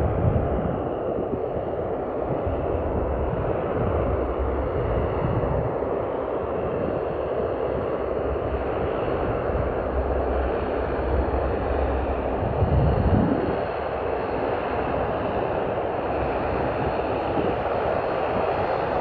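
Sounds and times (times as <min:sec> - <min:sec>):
turboprop engines running: 0:00.0 - 0:19.0
low rumbling: 0:02.1 - 0:05.9, 0:08.0 - 0:15.0.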